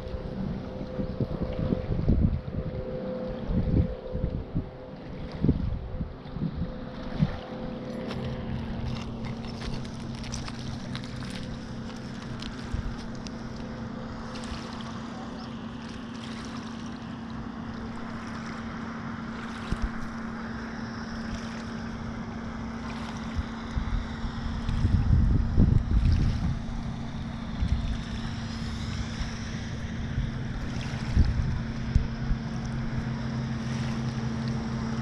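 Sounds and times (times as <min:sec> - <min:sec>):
wind buffeting microphone: 0:00.0 - 0:15.6, 0:23.2 - 0:35.0
boat engine droning: 0:00.0 - 0:35.0.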